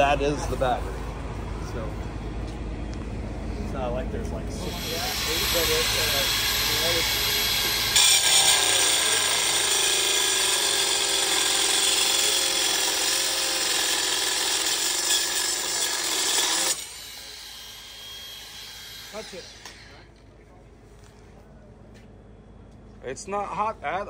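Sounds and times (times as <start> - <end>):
metal saw cutting steel: 4.6 - 20.1.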